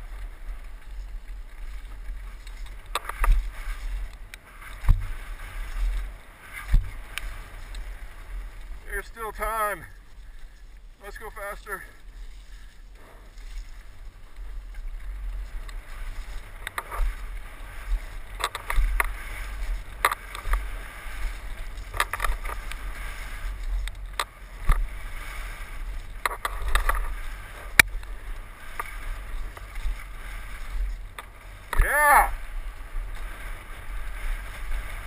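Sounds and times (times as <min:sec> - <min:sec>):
wind rumbling on microphone: 0:00.0 - 0:35.0.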